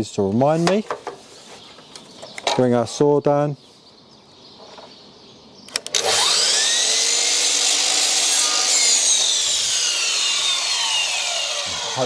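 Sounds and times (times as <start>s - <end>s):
mitre saw motor whining: 5.8s - 12.0s.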